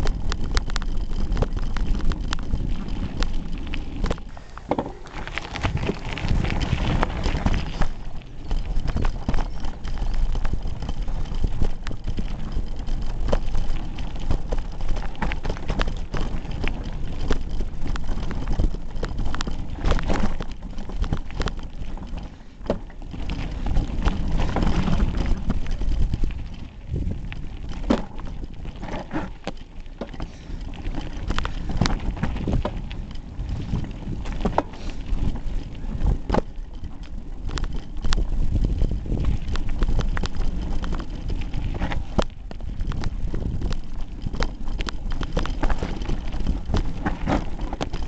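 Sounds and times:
bike rattling over gravel: 0.0 - 48.0
wind on microphone: 5.2 - 12.6, 23.1 - 29.3, 37.7 - 47.9.

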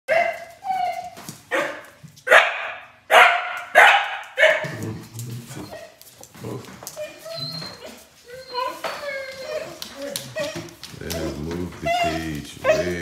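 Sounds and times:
dog barking: 0.1 - 0.5, 1.5 - 4.8.

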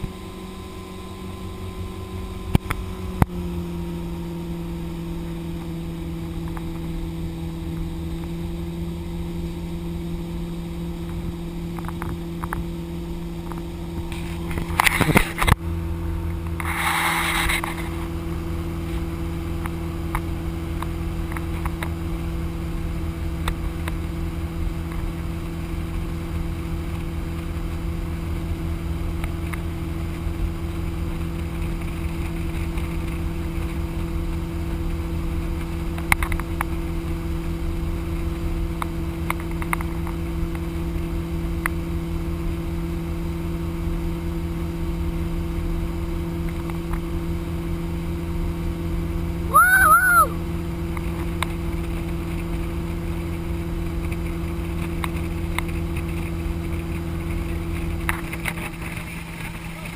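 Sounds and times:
motorboat engine drone: 0.0 - 59.9
rush of boat wake: 0.0 - 59.9
short loud pitched call: 49.5 - 50.4.

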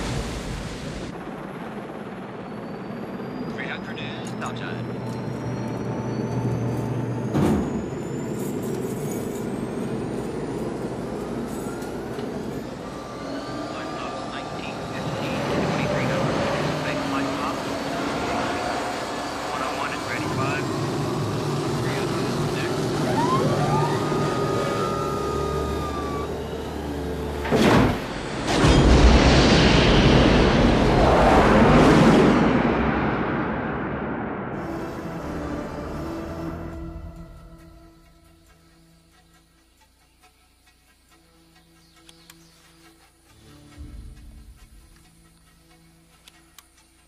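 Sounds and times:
jet engine rumble and whine: 0.0 - 39.8
loud whoosh: 27.4 - 36.0.

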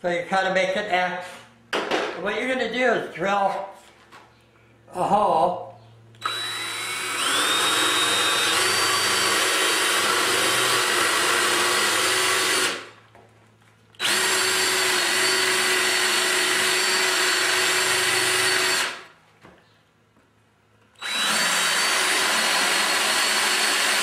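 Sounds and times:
drill boring into wood: 6.2 - 12.9, 14.0 - 19.1, 21.0 - 24.0.

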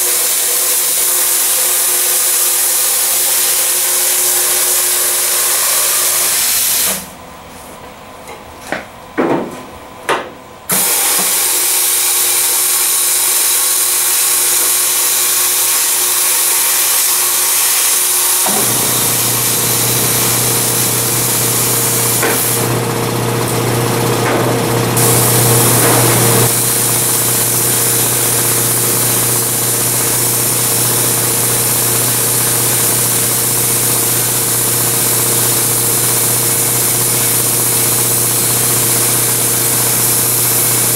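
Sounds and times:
compressed air hissing: 10.7 - 22.7, 25.0 - 34.5
plasma arc buzzing: 10.7 - 40.9.

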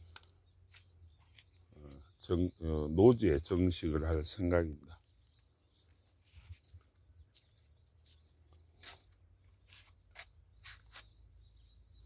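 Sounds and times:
faint short clicks and scuffs: 0.1 - 1.7, 5.0 - 11.1.

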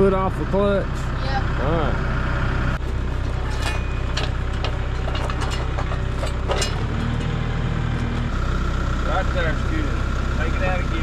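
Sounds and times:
tractor diesel engine idling: 0.0 - 11.0
metal clinks and knocks: 2.8 - 8.3.

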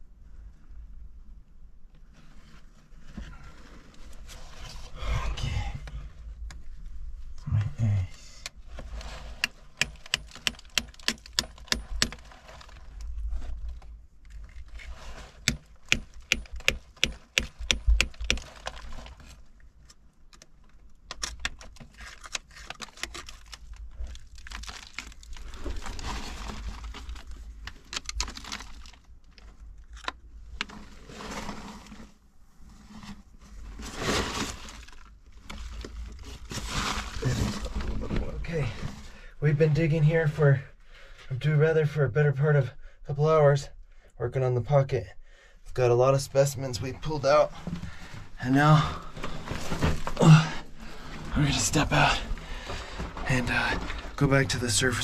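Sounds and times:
tool scraping rock: 8.8 - 13.0, 14.3 - 19.4, 47.0 - 55.0
hammer tapping steel chisel on rock: 15.5 - 18.4.

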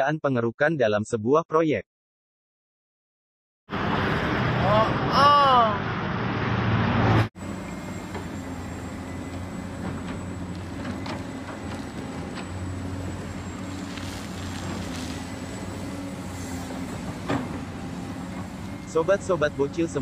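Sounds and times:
excavator diesel engine: 7.4 - 20.0.

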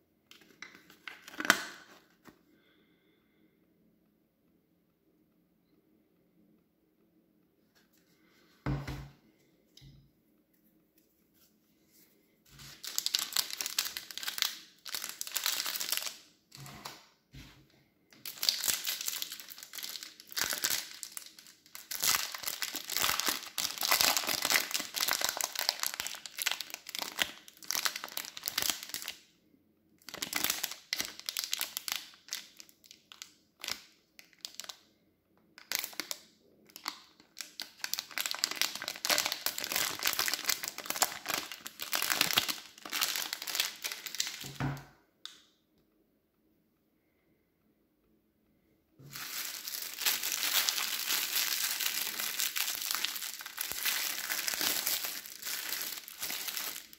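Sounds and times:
plastic packaging crinkling: 0.3 - 2.3, 12.5 - 17.0, 18.1 - 29.2, 30.0 - 34.9, 35.6 - 44.6, 49.0 - 56.9.

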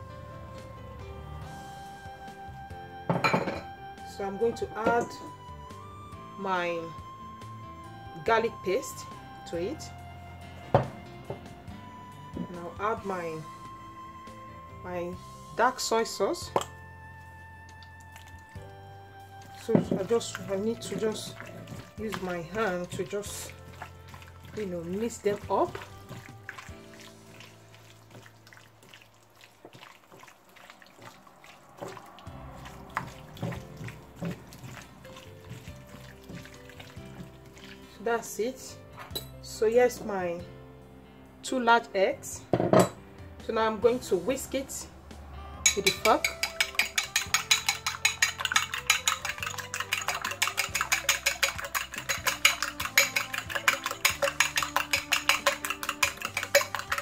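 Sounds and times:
fork whisking eggs in a dish: 20.0 - 37.9, 45.7 - 57.0
wet squelching of raw chicken: 23.4 - 38.0.

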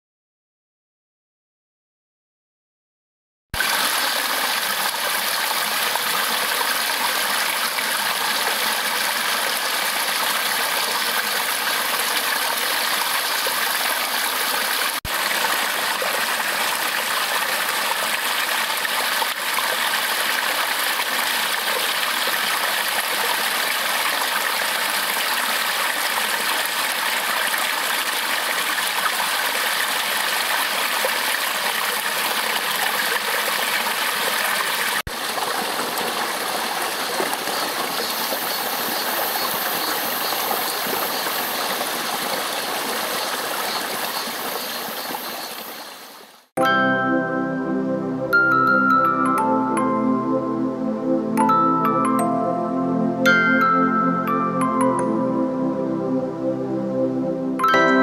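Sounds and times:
stream rushing over rocks: 3.6 - 46.5.

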